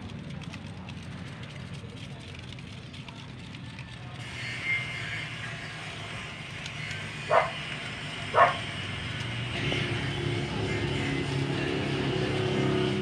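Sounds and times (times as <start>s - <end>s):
dog barking: 7.3s - 7.6s, 8.3s - 8.7s.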